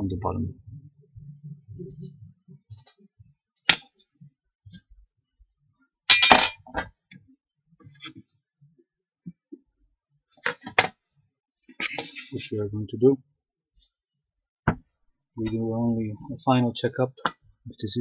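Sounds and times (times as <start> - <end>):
metal tools clanking on wood: 6.1 - 6.8.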